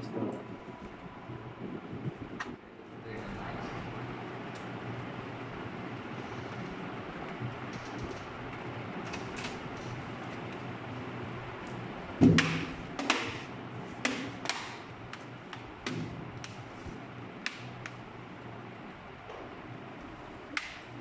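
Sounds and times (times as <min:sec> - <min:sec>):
loud knock on plastic case: 0:12.2 - 0:13.3.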